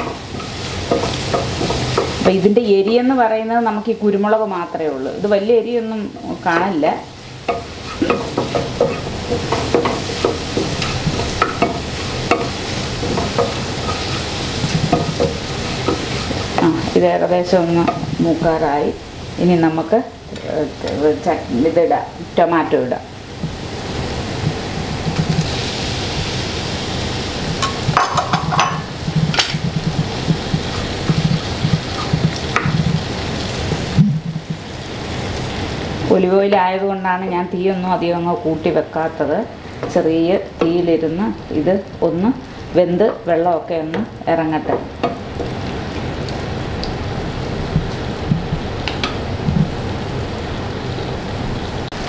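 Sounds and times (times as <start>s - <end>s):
wooden spatula stirring pan: 0.0s - 3.2s, 6.0s - 18.7s, 24.4s - 26.7s, 27.5s - 35.7s
garlic sizzling in oil: 0.0s - 52.0s.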